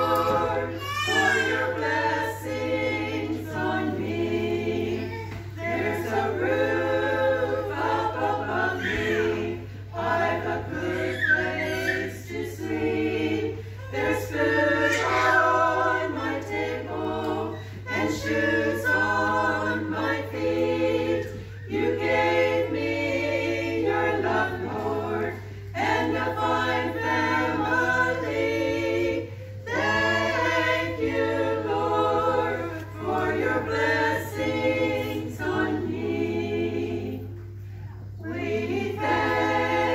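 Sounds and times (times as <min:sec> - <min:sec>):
women's choir singing unaccompanied: 0:00.0 - 0:39.9.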